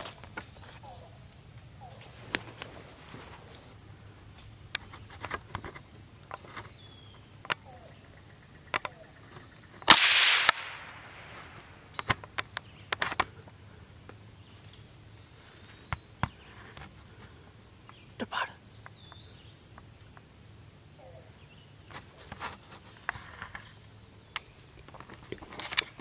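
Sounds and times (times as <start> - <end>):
insects droning: 0.0 - 26.0
loud crack: 9.9 - 11.8.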